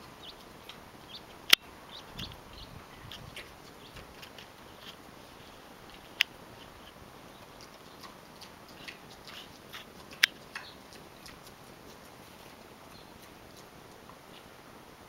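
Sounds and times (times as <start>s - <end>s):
pig chewing from plastic bowl: 6.0s - 13.7s.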